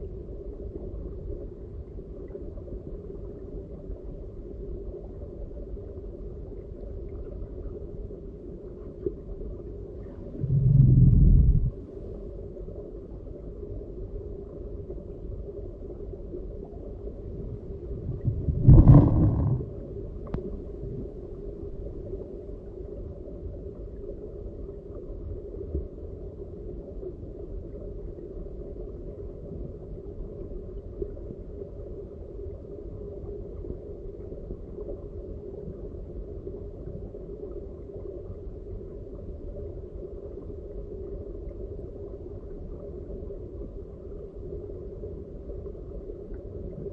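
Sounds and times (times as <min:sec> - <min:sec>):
muffled stream water underwater: 0:00.0 - 0:46.9
thump: 0:18.6 - 0:19.7.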